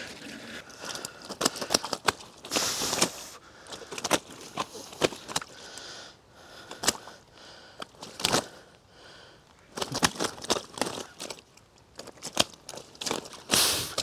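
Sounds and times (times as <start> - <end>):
fishing gear clicking and knocking: 0.8 - 5.6, 7.8 - 8.6, 9.7 - 14.0
short hissing rustle: 2.5 - 3.4, 13.5 - 14.0.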